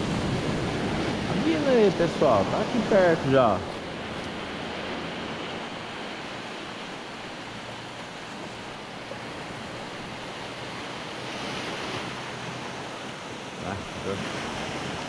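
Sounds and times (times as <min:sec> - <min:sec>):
waves washing onto sandy beach: 0:00.0 - 0:15.0.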